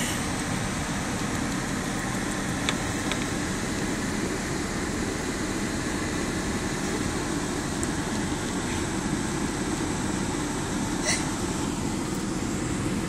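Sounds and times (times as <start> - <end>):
car air conditioning blowing: 0.0 - 13.0
vehicle rumble: 0.0 - 13.0.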